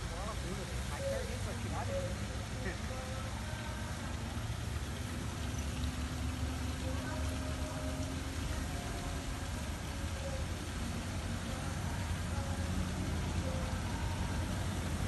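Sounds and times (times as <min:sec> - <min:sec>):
faint distant voices: 0:00.0 - 0:15.0.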